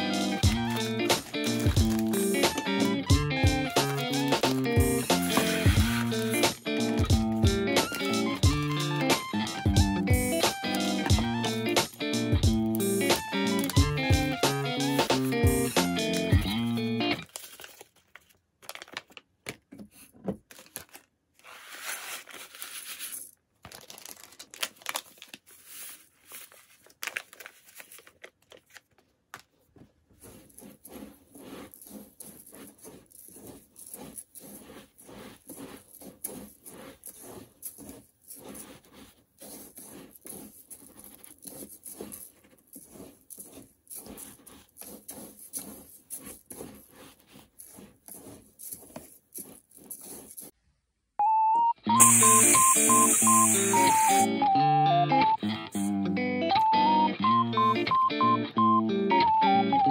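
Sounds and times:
hands rubbing dry grains: 0.0 - 17.1, 21.5 - 23.4, 25.5 - 26.8, 30.1 - 50.6, 52.0 - 54.3
loud hiss: 52.0 - 54.3.

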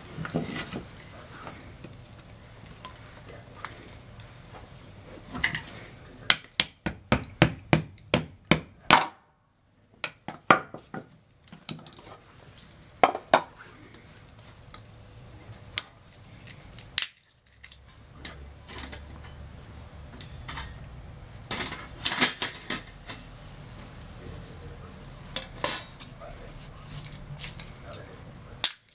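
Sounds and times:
metal grill grate clinking: 20.1 - 20.9.

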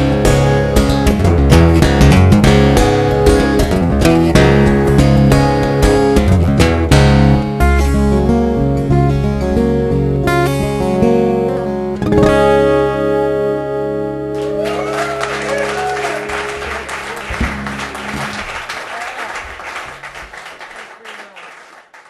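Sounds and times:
acoustic guitars playing: 0.0 - 18.8
applause: 14.4 - 22.0.

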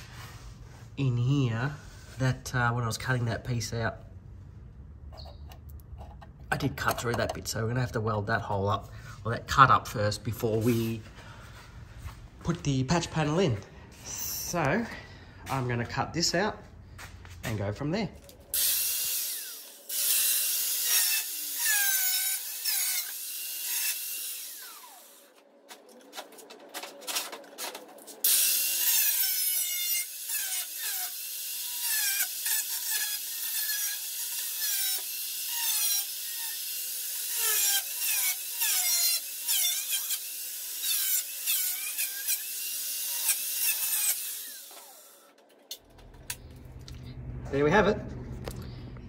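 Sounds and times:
power tool cutting sheet steel: 18.5 - 25.4, 27.0 - 45.3.

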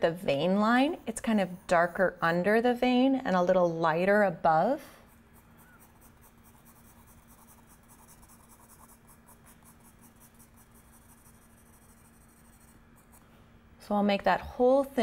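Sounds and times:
pencil scratching on paper: 5.0 - 13.2.

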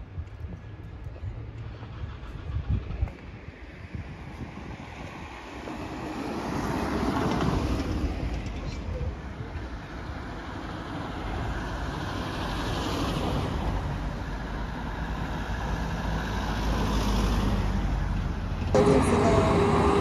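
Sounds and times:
cars driving past: 3.3 - 8.5, 9.8 - 20.0.

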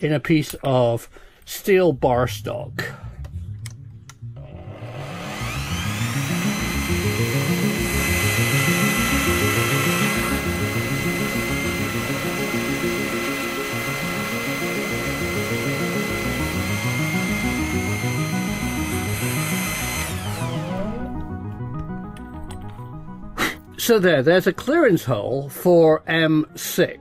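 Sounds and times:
background music: 0.0 - 27.0
drill cutting steel: 4.4 - 21.0
drill press whining: 4.4 - 22.0.

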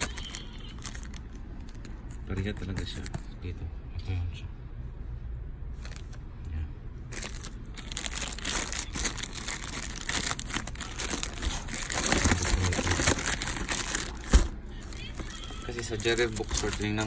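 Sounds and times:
plastic wrapping crinkling: 0.0 - 3.1, 5.8 - 6.2, 7.1 - 17.0.

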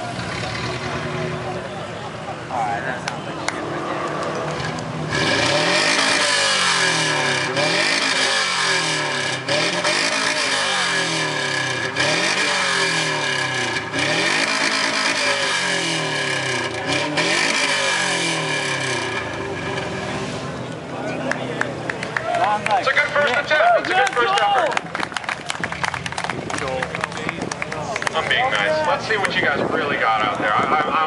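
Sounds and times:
car engine revving: 0.0 - 1.8, 2.4 - 21.8.

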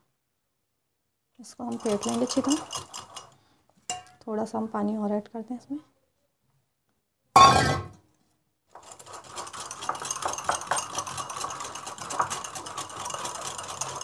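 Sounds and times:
whisk beating in glass bowl: 1.6 - 4.1, 8.7 - 14.0.

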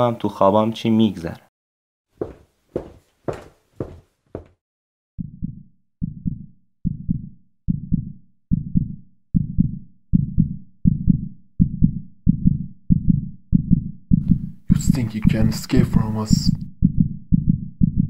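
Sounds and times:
heartbeat thumps: 2.2 - 4.5, 5.2 - 15.6, 16.8 - 18.0.

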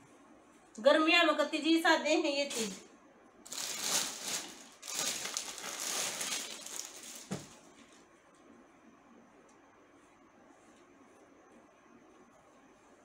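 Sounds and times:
plastic bag crinkling: 3.5 - 7.7.

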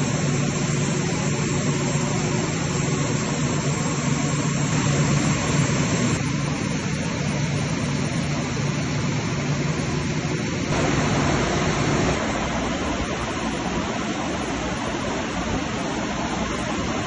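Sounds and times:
diesel generators droning: 0.0 - 17.0
low hum: 0.0 - 17.0.

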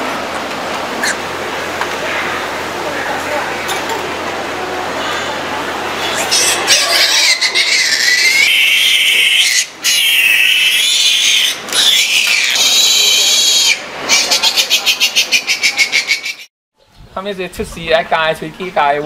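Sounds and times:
piglet squealing: 1.0 - 1.2, 6.0 - 16.5.

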